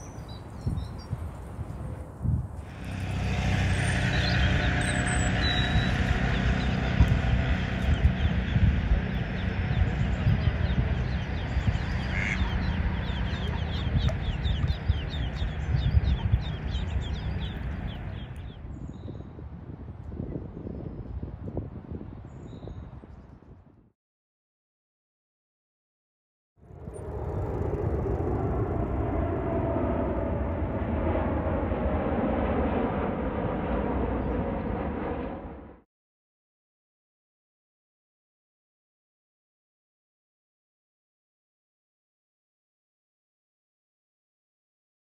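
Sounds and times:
jet engines roaring overhead: 0:00.0 - 0:22.3, 0:26.6 - 0:35.8
low steady rumble: 0:02.1 - 0:18.6
ducklings peeping: 0:09.3 - 0:18.5.

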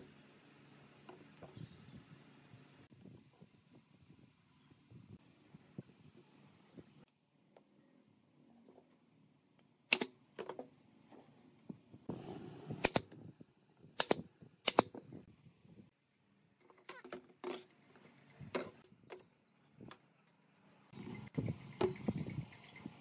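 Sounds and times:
nail gun shots into wood: 0:09.9 - 0:10.2, 0:14.0 - 0:15.0.

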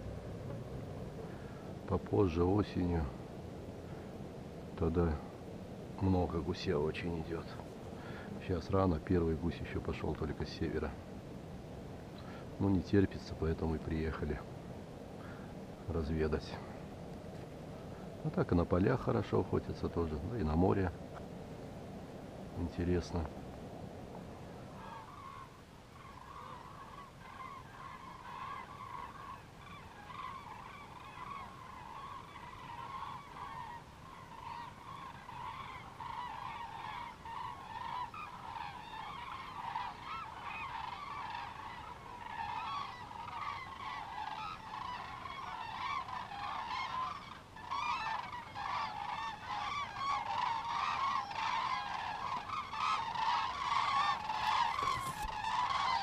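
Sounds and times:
geese honking: 0:24.7 - 0:56.0.

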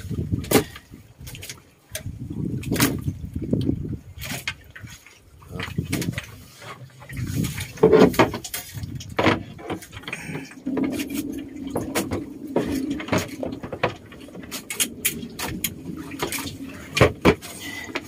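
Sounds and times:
styrofoam cooler knocks and scrapes: 0:16.2 - 0:18.0.

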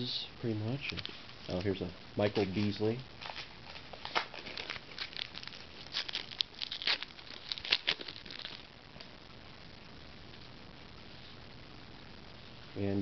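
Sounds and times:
card wrappers crinkling: 0:00.8 - 0:08.7.

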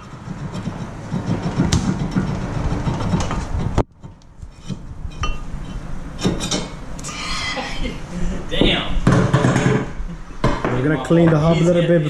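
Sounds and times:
sharp metal knocks: 0:00.0 - 0:05.5, 0:08.6 - 0:10.8
metallic scraping rattle: 0:00.0 - 0:06.9.

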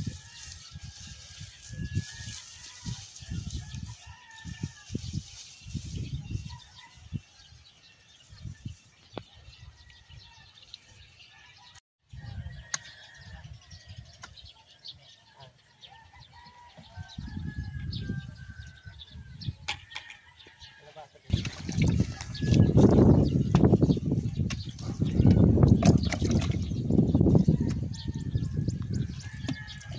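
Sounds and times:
wind buffeting microphone: 0:00.0 - 0:08.8, 0:16.8 - 0:19.9, 0:21.3 - 0:29.9.

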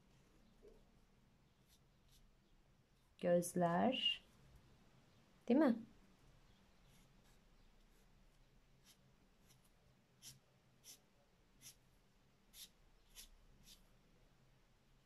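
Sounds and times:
marker strokes on paper: 0:01.6 - 0:02.3, 0:08.8 - 0:11.8, 0:12.5 - 0:13.9.

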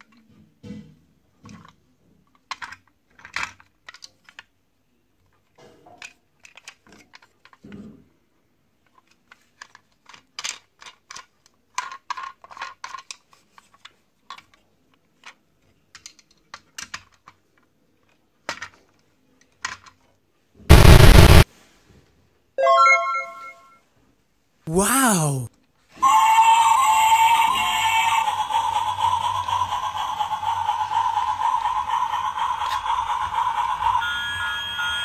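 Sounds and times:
plastic toy train clicking: 0:01.5 - 0:04.6, 0:06.0 - 0:07.7, 0:08.8 - 0:18.9, 0:19.5 - 0:20.0.

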